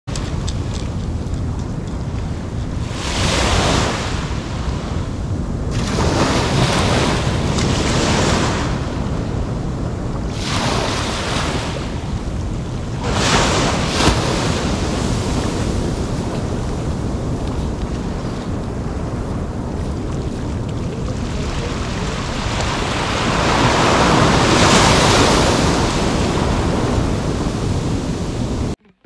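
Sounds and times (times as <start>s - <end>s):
wind rumble on microphone: 0.0s - 28.8s
small waves breaking on beach: 2.8s - 28.8s.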